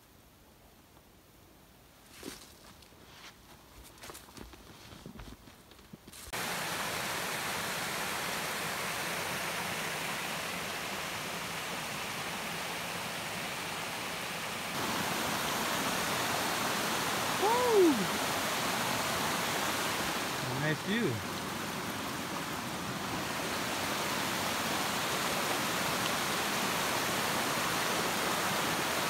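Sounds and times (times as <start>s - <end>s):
creek water rushing over rocks: 6.4s - 29.0s.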